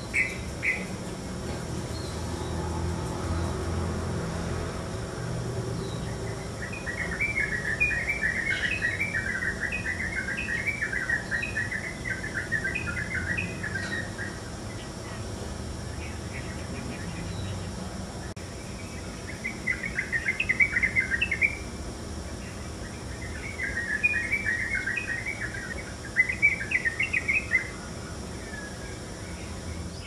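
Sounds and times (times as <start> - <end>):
bird chattering song: 0.0 - 1.1, 5.8 - 15.3, 18.4 - 21.7, 22.4 - 30.0.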